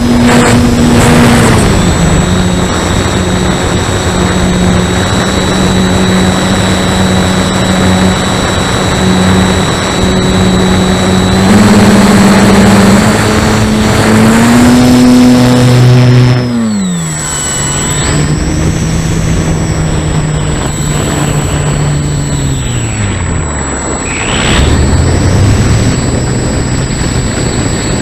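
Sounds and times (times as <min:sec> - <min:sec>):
electric motor and propeller: 0:00.0 - 0:28.0
thin high whine: 0:00.0 - 0:28.0
rush of air: 0:17.1 - 0:28.0.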